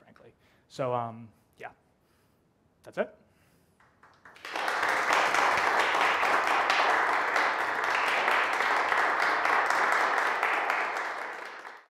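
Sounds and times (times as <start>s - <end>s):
audience applauding: 3.8s - 11.9s.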